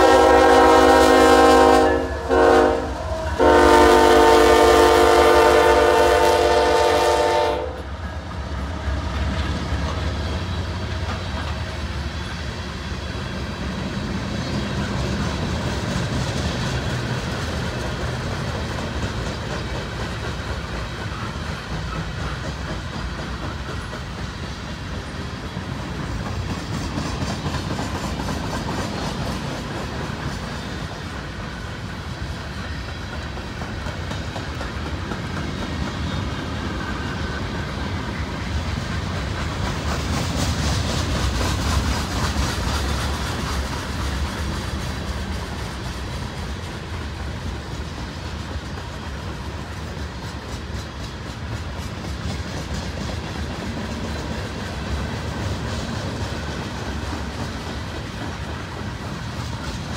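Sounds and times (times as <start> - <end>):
freight train wheels rumbling: 0.0 - 59.9
wheel clicks on rail: 16.2 - 59.9.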